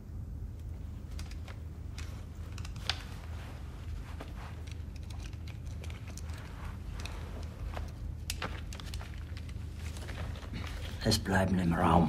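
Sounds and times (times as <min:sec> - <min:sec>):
steady low hum: 0:00.0 - 0:12.0
small clicks: 0:00.6 - 0:03.3
faint rustling: 0:00.6 - 0:11.3.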